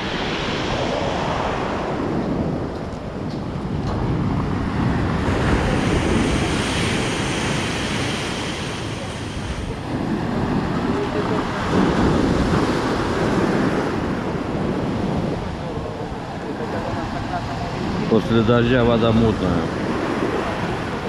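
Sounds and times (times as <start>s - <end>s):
wind buffeting microphone: 0.0s - 21.0s
waves breaking on pebble beach: 3.7s - 16.4s.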